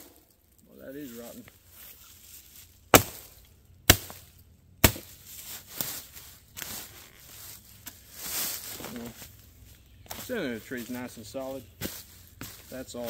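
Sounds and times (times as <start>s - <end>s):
axe chopping into log: 2.9s - 5.2s.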